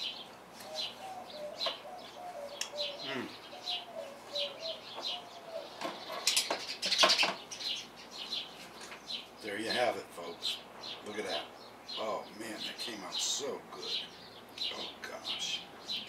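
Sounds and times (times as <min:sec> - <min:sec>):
small birds chirping: 0:00.0 - 0:16.0
low cooing call: 0:00.6 - 0:05.8.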